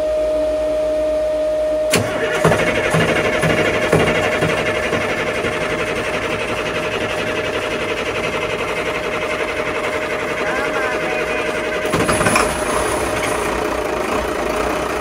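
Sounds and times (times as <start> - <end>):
steady humming tone: 0.0 - 2.0, 5.2 - 13.9
diesel engine idling: 1.9 - 15.0.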